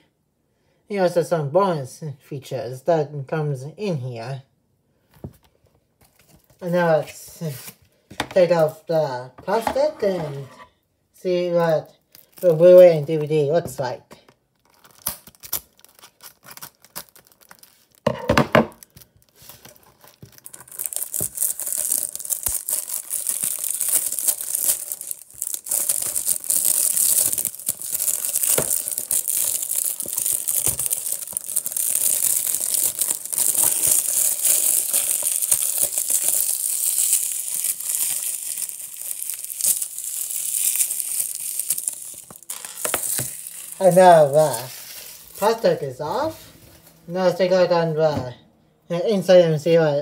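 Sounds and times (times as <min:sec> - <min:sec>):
short scrape: 0:10.0 - 0:10.8
plastic film crinkling: 0:11.8 - 0:13.4, 0:14.3 - 0:47.0.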